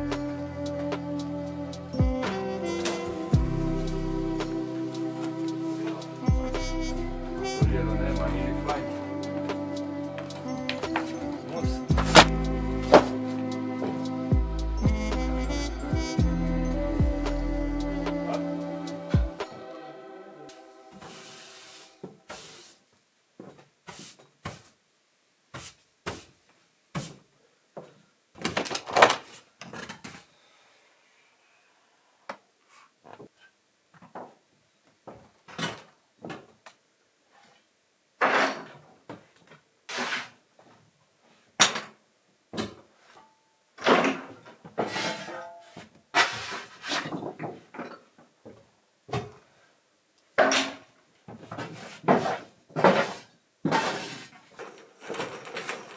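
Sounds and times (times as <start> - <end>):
short scrapes: 39.9 - 40.4.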